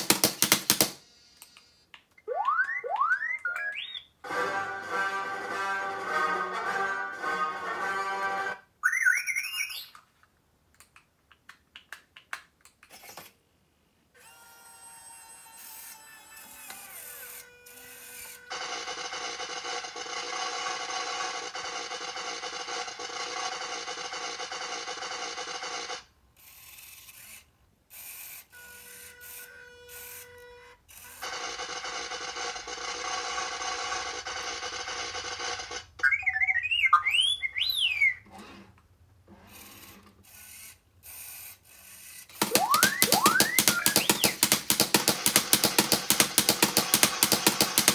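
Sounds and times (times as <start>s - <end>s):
robot clicks and chirps: 2.2s - 4.2s, 36.0s - 38.2s, 42.4s - 44.5s
robot warbling whistles: 2.2s - 4.2s, 8.8s - 9.9s, 36.0s - 38.2s, 42.4s - 44.4s.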